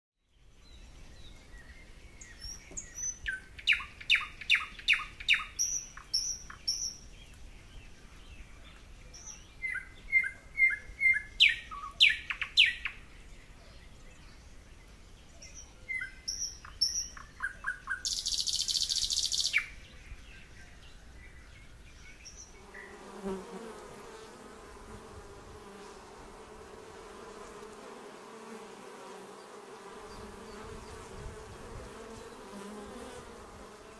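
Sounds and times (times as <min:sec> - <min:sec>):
small birds singing: 0:00.2 - 0:23.8, 0:29.3 - 0:33.9
honey bees buzzing: 0:22.6 - 0:33.9.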